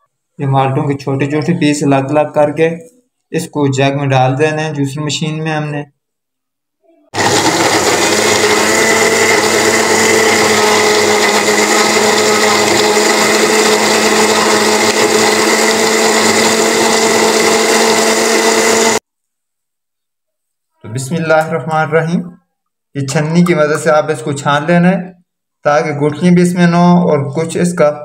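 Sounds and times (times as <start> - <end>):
electric blender running: 7.2 - 19.0.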